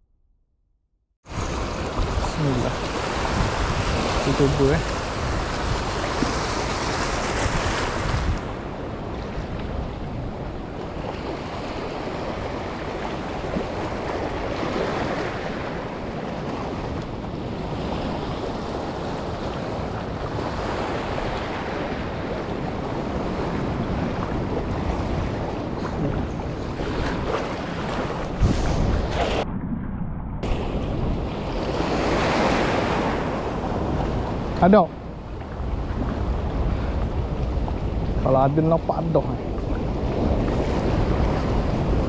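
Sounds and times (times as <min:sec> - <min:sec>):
water rushing: 0:01.3 - 0:08.7
wind buffeting microphone: 0:01.3 - 0:42.0.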